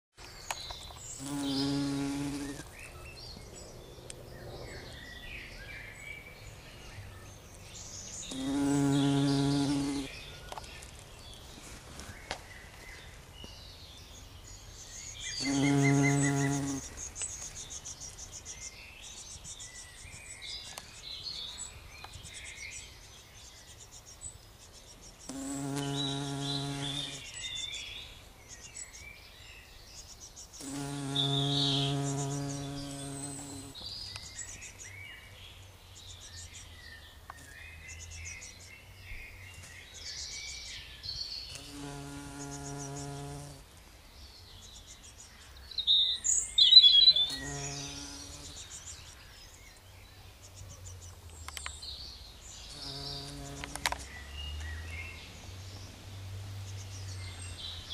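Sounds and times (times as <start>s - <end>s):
bumblebee buzzing in flight: 1.2s - 2.7s, 8.3s - 10.1s, 15.4s - 16.9s, 25.3s - 27.2s, 30.6s - 33.8s, 41.5s - 43.6s, 47.2s - 48.6s, 52.7s - 54.0s.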